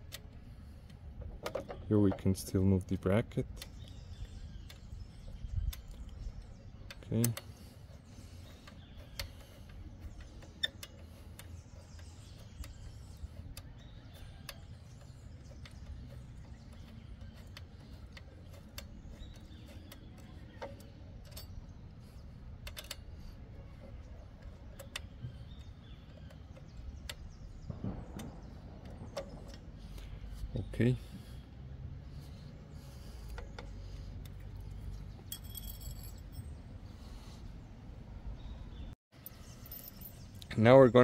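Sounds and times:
allen key metallic clicks: 8.4 - 30.2.

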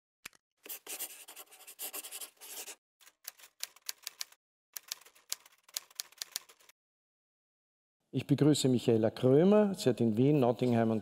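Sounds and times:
marker pen scribbling on paper: 0.6 - 2.8.

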